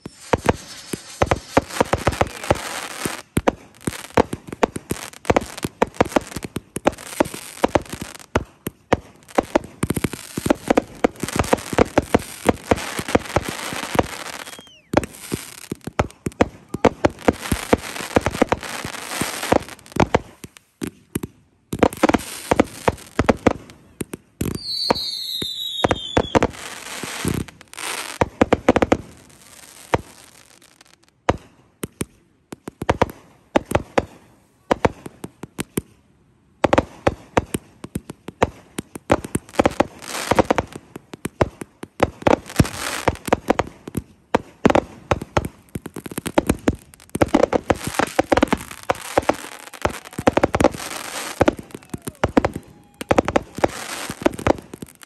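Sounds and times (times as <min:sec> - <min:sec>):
falling firework whistle: 0:00.0 - 0:03.2, 0:13.6 - 0:15.3, 0:24.4 - 0:27.4, 0:47.9 - 0:54.2
fireworks bangs: 0:00.0 - 0:35.9, 0:36.6 - 0:55.0.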